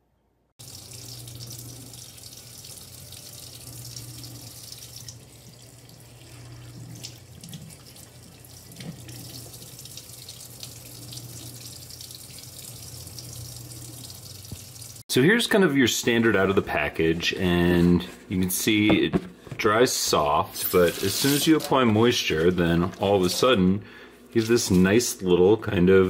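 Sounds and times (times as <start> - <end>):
faucet running into sink: 0.6 - 15.0.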